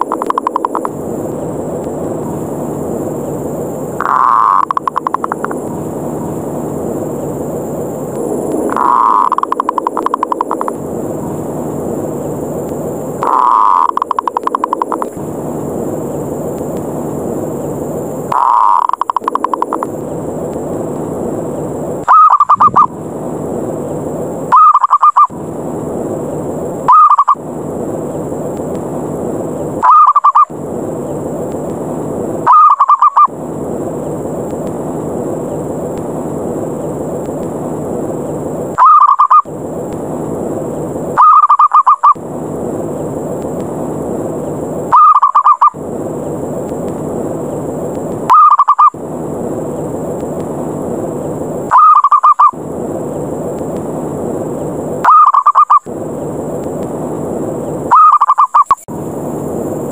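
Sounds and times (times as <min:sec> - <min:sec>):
steady rushing noise: 0:00.0 - 0:51.8, 0:52.4 - 0:55.1, 0:55.7 - 0:58.0, 0:58.6 - 0:59.9
dove stuttering coos: 0:04.0 - 0:05.6, 0:08.7 - 0:10.8, 0:13.2 - 0:15.0, 0:18.3 - 0:19.9, 0:22.1 - 0:22.9, 0:24.5 - 0:25.3, 0:26.9 - 0:27.4, 0:29.8 - 0:30.5, 0:32.4 - 0:33.3, 0:38.8 - 0:39.5, 0:41.2 - 0:42.2, 0:44.9 - 0:45.8, 0:48.3 - 0:49.0, 0:51.7 - 0:52.6, 0:55.0 - 0:55.8, 0:57.9 - 0:58.7.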